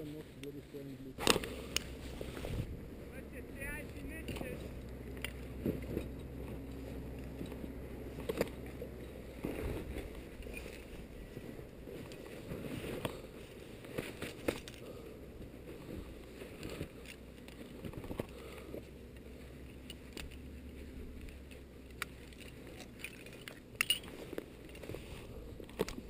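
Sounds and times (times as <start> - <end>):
low rumble: 1.4 - 13.4
climbing gear clicking: 3.7 - 26.0.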